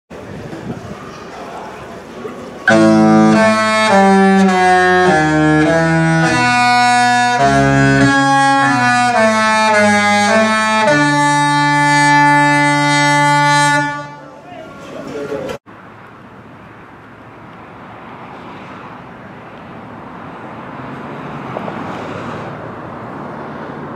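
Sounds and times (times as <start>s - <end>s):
ship horn playing chords: 2.7s - 14.4s.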